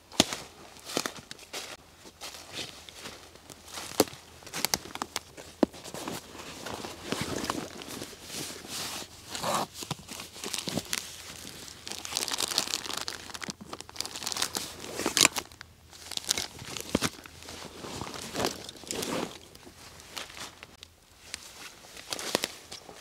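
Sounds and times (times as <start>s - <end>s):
canvas backpack rustling: 2.3s - 13.4s, 16.0s - 20.8s
plastic bag crinkling: 9.3s - 20.8s.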